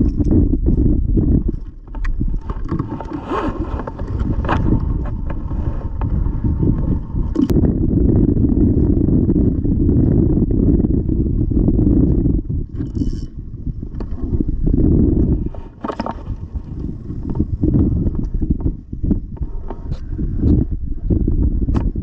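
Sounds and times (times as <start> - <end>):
microphone handling clicks: 0.0 - 7.7, 15.1 - 20.7, 21.6 - 22.0
wind buffeting microphone: 0.0 - 22.0.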